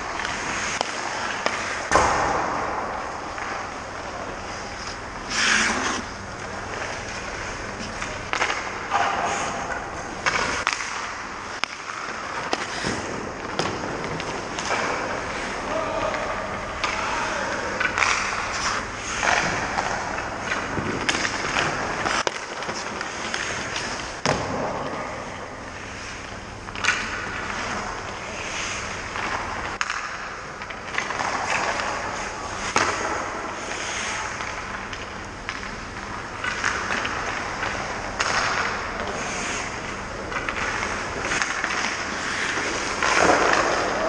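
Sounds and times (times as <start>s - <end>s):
skates scraping on ice: 0.0s - 2.2s, 2.8s - 24.2s, 36.4s - 44.0s
hockey sticks and pucks cracking: 0.1s - 25.0s, 25.8s - 44.0s.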